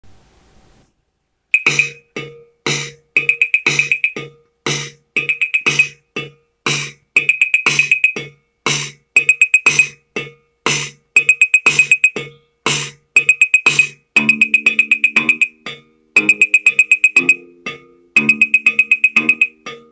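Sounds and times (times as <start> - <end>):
snare hits: 1.6 - 10.0
drum machine beat: 1.6 - 19.9
low kick drum: 1.7 - 14.5.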